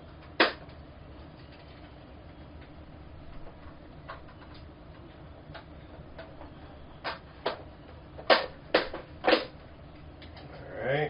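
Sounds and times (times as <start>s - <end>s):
sharp plastic clacks: 0.2s - 0.8s, 8.2s - 9.6s
plastic panels clicking and knocking: 5.5s - 9.6s.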